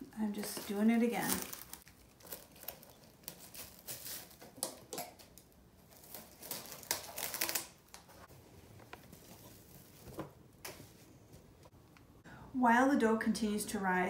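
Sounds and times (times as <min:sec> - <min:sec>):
plastic wrap crinkling: 0:00.2 - 0:08.3.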